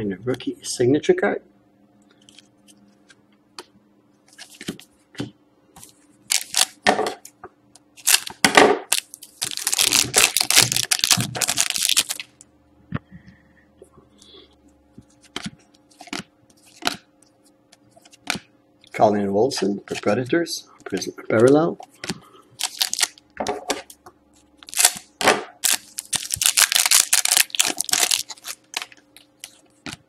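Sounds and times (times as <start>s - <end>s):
foil wrapper crinkling and tearing: 6.3s - 6.8s, 8.0s - 12.4s, 22.6s - 23.2s, 24.6s - 30.0s.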